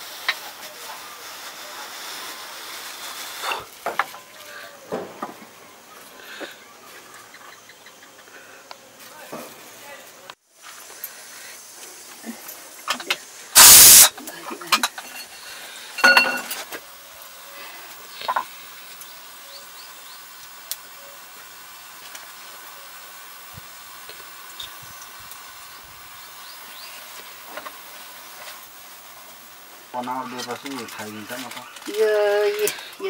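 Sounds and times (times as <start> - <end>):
wok sizzling: 0.0 - 33.0
ringing metal clink: 16.0 - 16.6.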